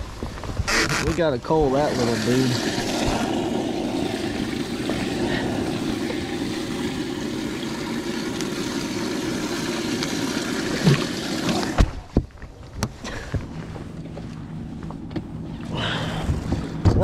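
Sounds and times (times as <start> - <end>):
boat motor running: 0.6 - 11.9.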